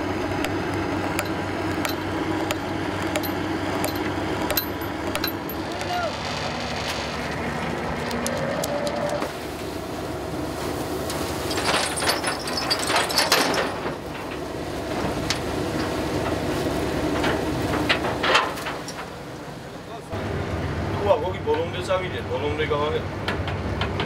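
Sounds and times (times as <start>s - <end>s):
machinery low drone: 0.0s - 12.1s
metal clanking and rattling: 1.2s - 7.1s, 11.4s - 14.4s, 17.1s - 19.2s.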